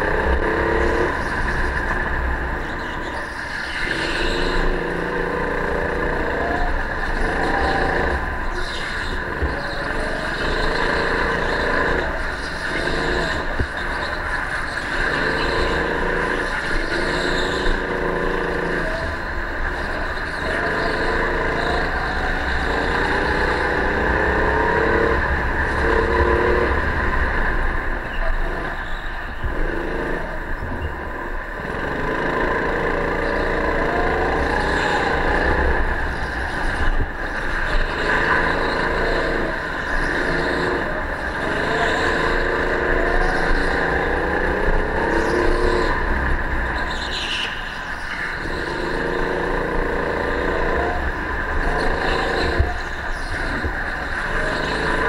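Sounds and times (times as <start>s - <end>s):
go-kart engine accelerating: 0.0s - 55.0s.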